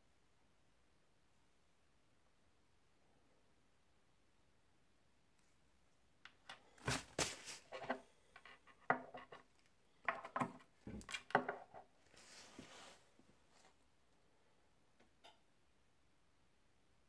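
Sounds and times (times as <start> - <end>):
soft rustle: 6.6 - 8.8, 12.0 - 13.9.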